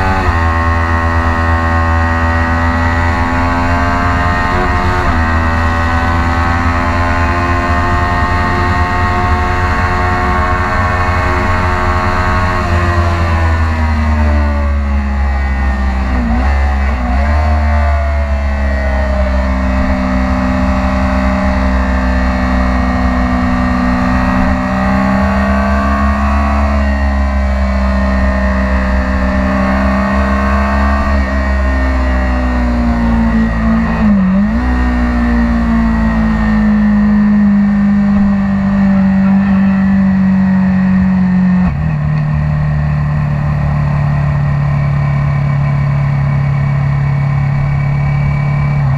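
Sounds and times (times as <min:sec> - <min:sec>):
low wind rumble: 0:00.0 - 0:17.3, 0:17.9 - 0:36.5
motorcycle engine at high revs: 0:00.0 - 0:48.9.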